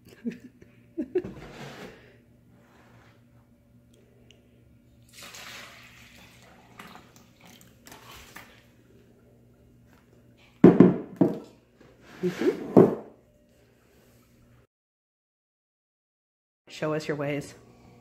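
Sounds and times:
milk pouring into a bowl: 0:05.0 - 0:09.1.

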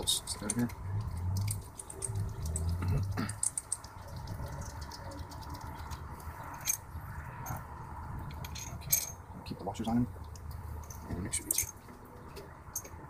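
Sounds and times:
metal bolts clinking: 0:00.3 - 0:00.8, 0:08.3 - 0:09.3, 0:10.8 - 0:11.9.

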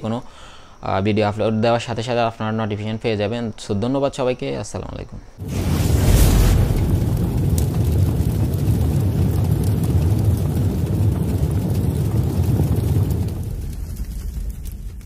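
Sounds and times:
low rumble sound effect: 0:05.4 - 0:15.0.

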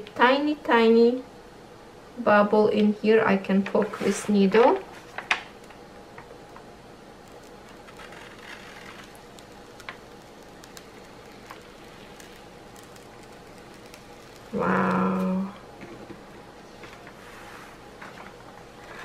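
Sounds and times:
room hiss: 0:00.0 - 0:19.0
release paper peeling: 0:07.1 - 0:15.3.

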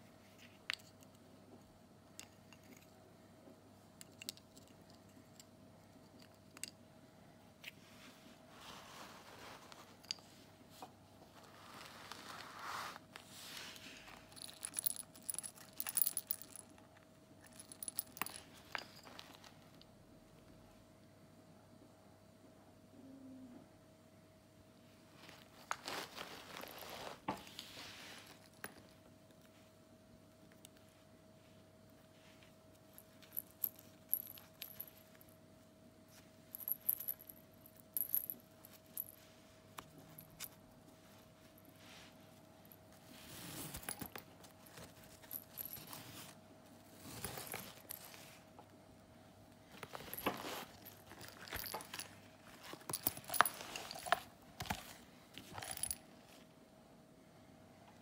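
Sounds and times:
faint steady hum: 0:00.0 - 0:58.0
soft brush of handling: 0:07.6 - 0:15.0, 0:25.2 - 0:28.7, 0:39.0 - 0:48.5
metal charms jingling: 0:14.2 - 0:16.7, 0:49.8 - 0:56.0.

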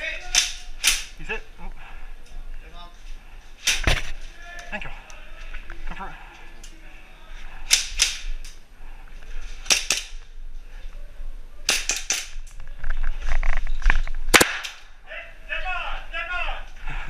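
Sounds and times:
airsoft guns firing: 0:09.6 - 0:10.2, 0:11.7 - 0:12.4, 0:14.3 - 0:14.9.

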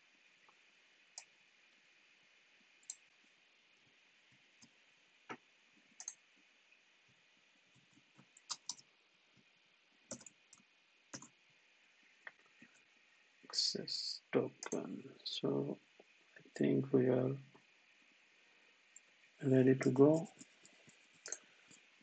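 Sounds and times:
low steady hiss: 0:00.0 - 0:22.0
keyboard and mouse clicks: 0:06.0 - 0:06.2, 0:08.3 - 0:08.8, 0:10.1 - 0:11.3.

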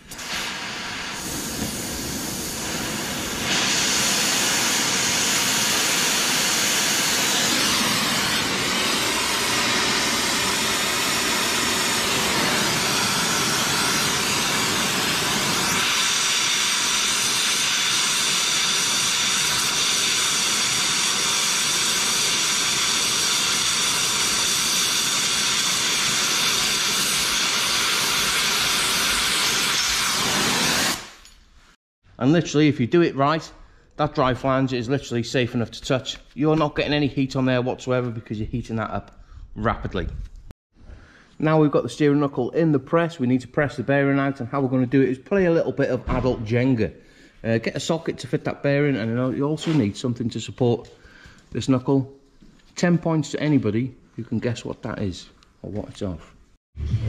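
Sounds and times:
torch burning with steady hiss: 0:00.0 - 0:31.3.

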